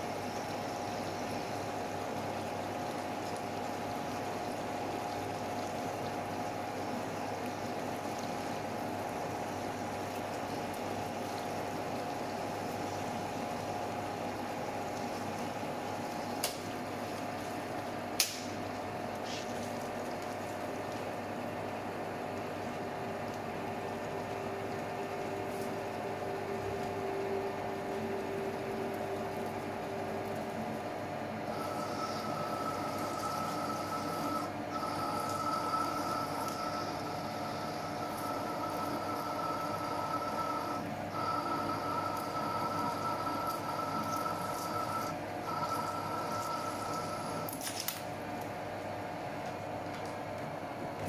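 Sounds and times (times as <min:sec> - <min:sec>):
coolant pouring hiss: 0:00.0 - 0:49.2
lathe drilling whine: 0:24.4 - 0:47.5.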